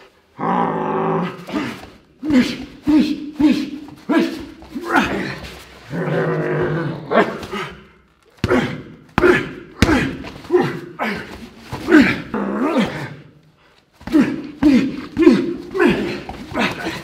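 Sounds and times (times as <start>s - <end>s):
man roaring: 0.3s - 13.4s, 14.1s - 17.0s
men growling and yelling: 0.4s - 13.2s, 14.0s - 17.0s
strikes smacking pads: 8.4s - 10.5s.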